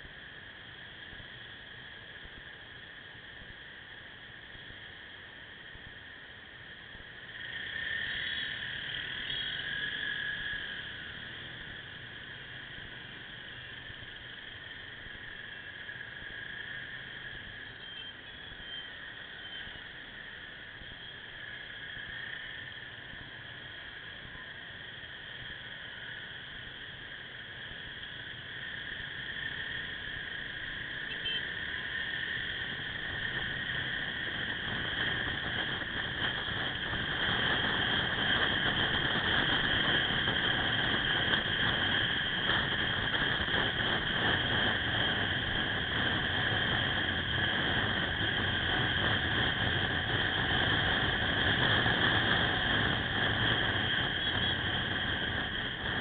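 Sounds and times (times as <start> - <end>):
high-pitched whine: 0.0 - 56.0
wind noise: 28.6 - 56.0.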